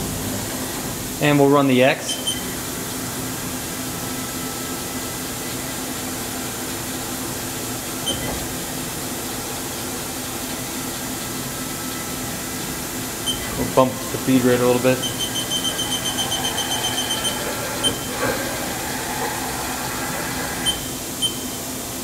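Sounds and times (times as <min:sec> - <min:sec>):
machine drive whir and hum: 0:00.0 - 0:22.0
short machine chirp: 0:15.0 - 0:18.2.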